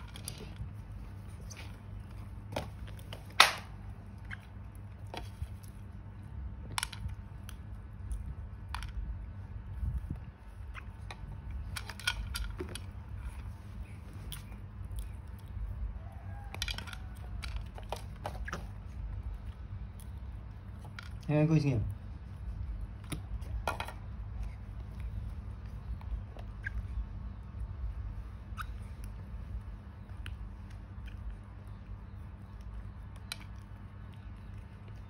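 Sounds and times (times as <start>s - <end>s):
steady low hum: 0.0s - 35.0s
plastic toys clicking and knocking: 16.5s - 18.7s.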